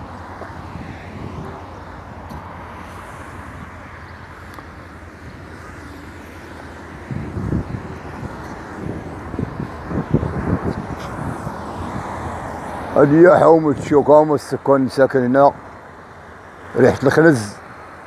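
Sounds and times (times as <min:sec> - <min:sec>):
cars driving along a street: 0:00.0 - 0:18.0.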